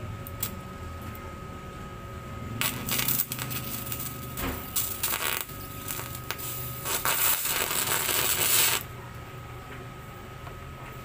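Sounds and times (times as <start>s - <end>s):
faint high whine: 0.0s - 10.7s
welding arc hissing and crackling: 2.6s - 8.9s.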